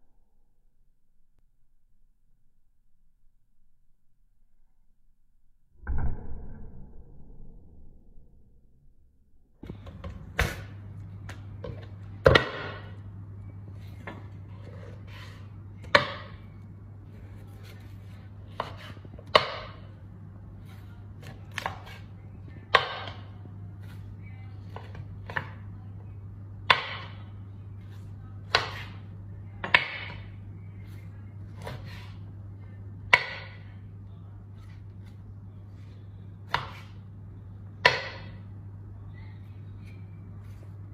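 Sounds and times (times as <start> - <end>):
steady low hum: 0.0 - 40.9
knife chopping meat on wooden board: 36.5 - 37.0.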